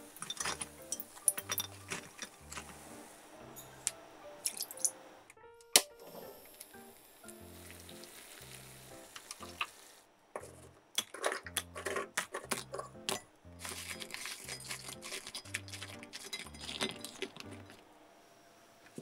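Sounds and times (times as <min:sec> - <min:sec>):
sugar syrup sizzling: 0:00.0 - 0:05.1, 0:05.9 - 0:10.1, 0:12.8 - 0:17.9
soft background music: 0:00.0 - 0:18.8.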